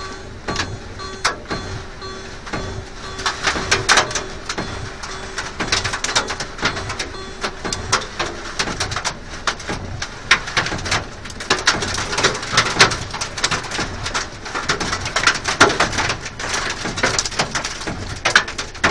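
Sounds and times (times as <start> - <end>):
hail drumming on a car: 0.0 - 18.9.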